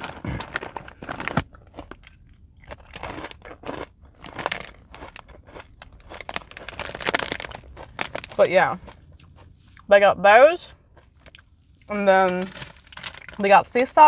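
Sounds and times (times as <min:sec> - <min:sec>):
crunchy chewing: 0:00.0 - 0:09.9, 0:10.7 - 0:11.9.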